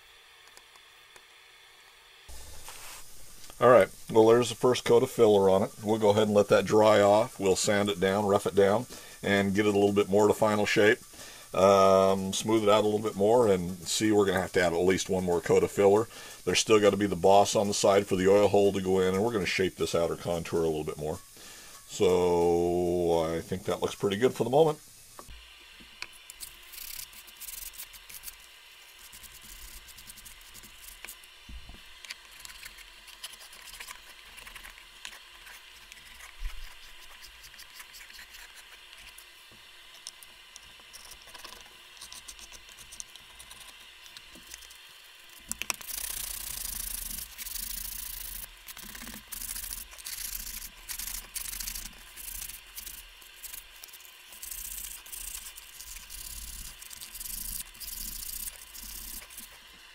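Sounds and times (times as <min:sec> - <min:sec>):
faint scraping and handling: 0:02.3 - 0:03.6
sandpaper rubbing on wood: 0:02.4 - 0:03.1, 0:26.4 - 0:31.2, 0:32.3 - 0:39.3, 0:45.8 - 0:59.6.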